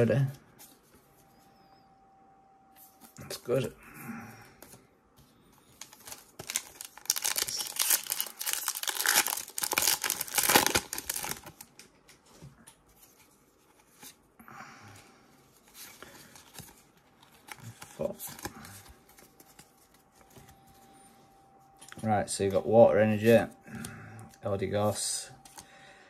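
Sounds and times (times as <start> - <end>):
cards rustling: 5.4 - 14.2, 15.5 - 20.8
foil wrapper tearing and crinkling: 5.8 - 11.7.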